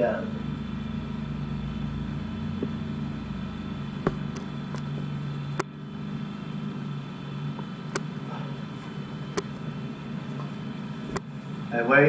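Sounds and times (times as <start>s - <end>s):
low hum: 0.0s - 12.0s
sharp clicks: 9.3s - 9.5s.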